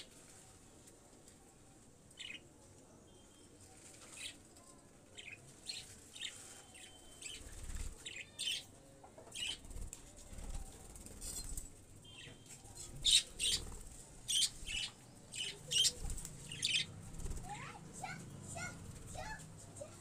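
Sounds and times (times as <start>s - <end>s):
faint bird chirps: 2.2s - 9.7s, 10.3s - 17.6s.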